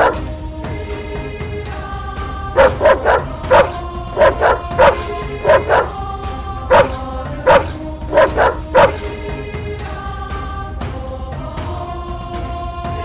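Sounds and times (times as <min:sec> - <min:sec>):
dog barking: 0:00.0 - 0:00.2, 0:02.6 - 0:06.0, 0:06.7 - 0:09.1
background music with sustained tones: 0:00.0 - 0:13.0.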